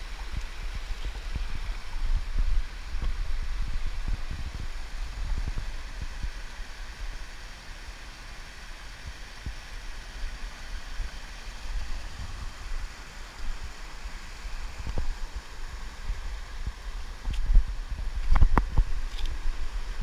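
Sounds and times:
wind buffeting microphone: 0.0 - 6.8, 14.6 - 20.0
stream water rushing over boulders: 0.0 - 20.0.

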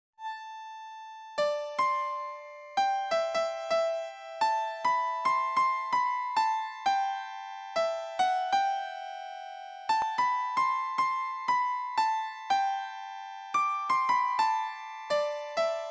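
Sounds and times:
piano-like keyboard melody: 0.2 - 15.9.

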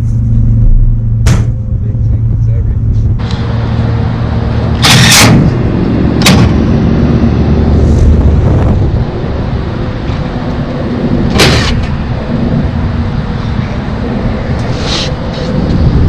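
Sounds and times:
air conditioner humming: 0.0 - 16.0
loud rushes of noise: 3.2 - 16.0.

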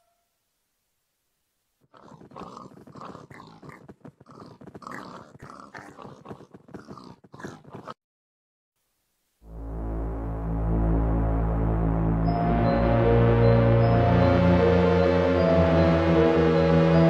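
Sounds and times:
pigs grunting and oinking: 1.9 - 8.0.

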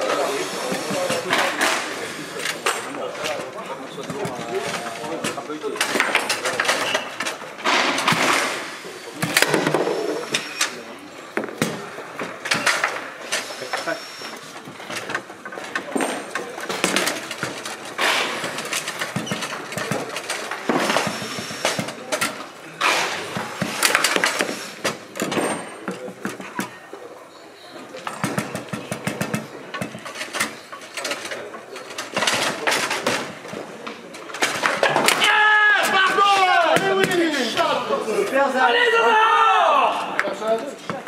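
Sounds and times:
table football clacks and knocks: 2.6 - 8.5, 9.2 - 10.5, 14.6 - 22.5, 23.2 - 27.0, 28.0 - 35.3.

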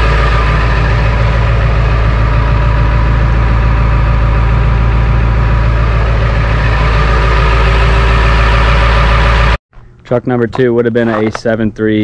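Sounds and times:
diesel engine idling loudly: 0.0 - 9.6.

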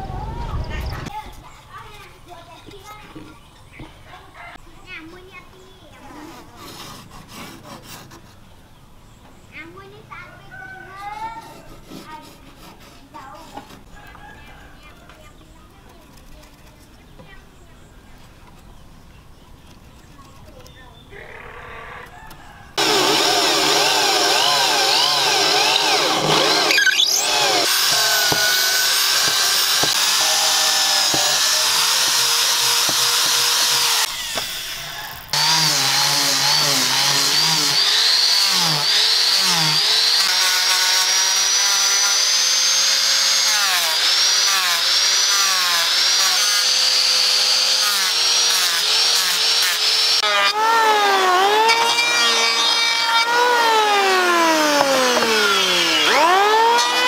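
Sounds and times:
angle grinder sanding wood: 6.0 - 8.3, 11.3 - 13.9, 22.8 - 57.0
electric power tool motor: 22.8 - 57.0.

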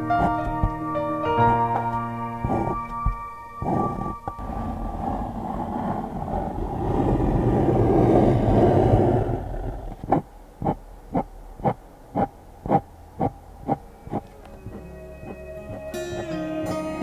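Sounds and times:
soft evenly spaced beats: 0.0 - 4.4
dense rumbling musical swell: 0.0 - 9.8, 12.9 - 16.9.

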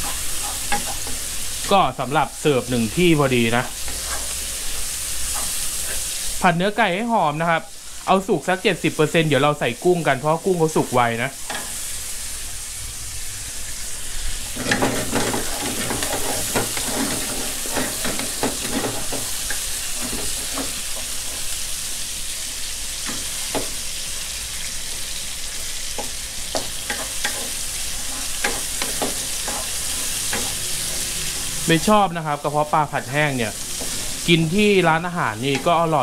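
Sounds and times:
wooden spatula scraping a wok: 0.0 - 1.8, 2.9 - 6.4, 14.4 - 21.7, 25.9 - 31.8, 33.5 - 36.0
chicken sizzling in hot oil: 0.0 - 36.0.

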